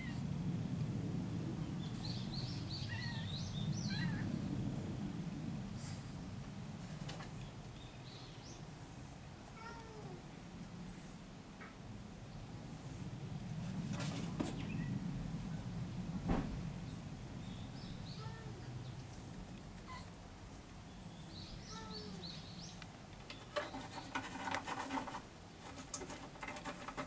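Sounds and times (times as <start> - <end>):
low outdoor rumble: 0.0 - 27.0
small birds chirping: 1.7 - 4.3, 7.3 - 9.2, 14.5 - 15.0, 16.8 - 24.2.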